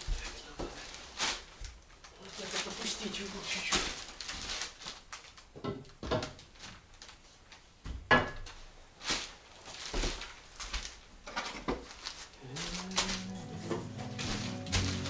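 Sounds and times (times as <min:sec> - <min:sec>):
footsteps on wooden floor: 0:12.8 - 0:15.0.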